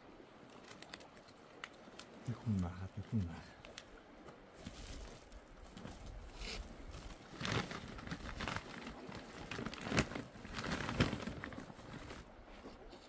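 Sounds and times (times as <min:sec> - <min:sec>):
plastic sack crinkling: 0:07.0 - 0:12.2.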